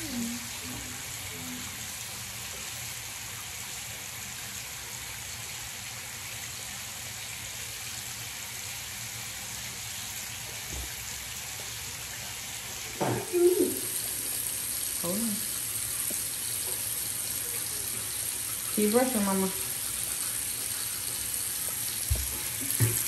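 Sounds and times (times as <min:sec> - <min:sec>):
sink tap running: 0:12.7 - 0:23.0.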